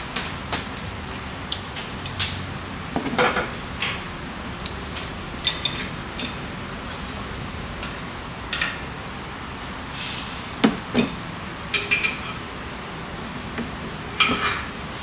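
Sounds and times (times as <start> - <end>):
metal clinks and knocks: 0.5 - 2.4, 4.4 - 6.6.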